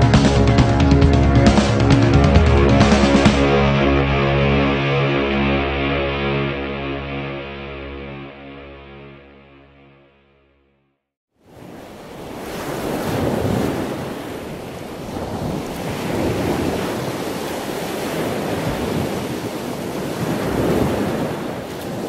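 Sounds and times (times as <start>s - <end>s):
waves breaking on rocky shore: 11.5s - 22.0s.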